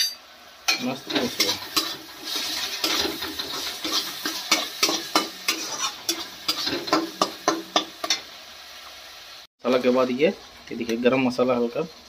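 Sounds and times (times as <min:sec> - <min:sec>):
masala sizzling in oil: 0:00.0 - 0:12.0
spatula scraping a metal pan: 0:01.1 - 0:08.2.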